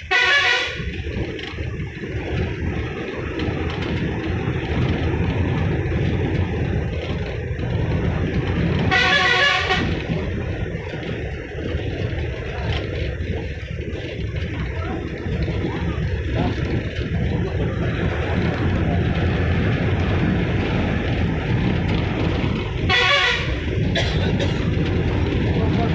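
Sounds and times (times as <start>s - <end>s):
vehicle horn: 0.0s - 1.0s, 8.9s - 10.1s, 22.8s - 23.8s
bus engine and road rumble: 0.0s - 25.9s.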